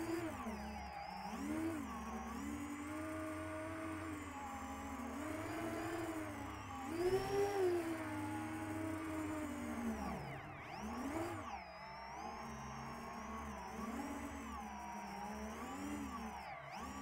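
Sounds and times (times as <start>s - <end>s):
drone propellers whining: 0.0s - 17.0s.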